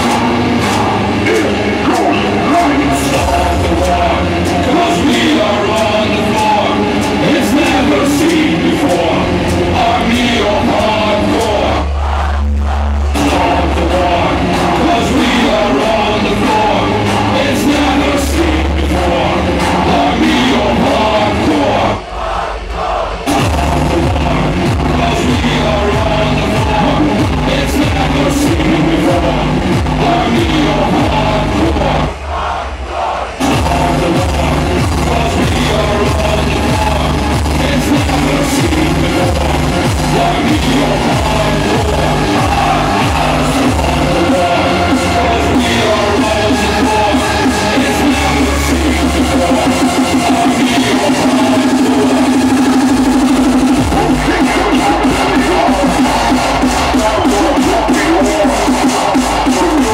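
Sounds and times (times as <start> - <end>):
distorted kick drum: 0.0 - 59.9
hardcore dance music: 0.0 - 59.9.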